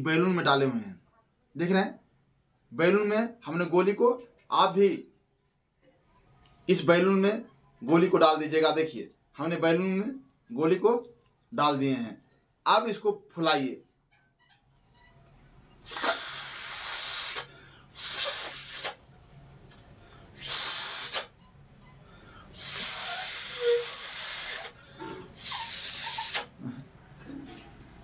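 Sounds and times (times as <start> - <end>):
air hissing from balloon neck: 15.7 - 19.1, 19.9 - 27.5.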